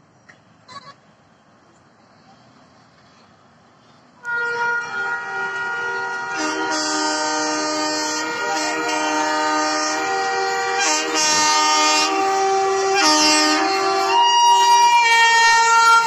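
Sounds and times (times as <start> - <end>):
locomotive air horns blasting: 4.2 - 16.0.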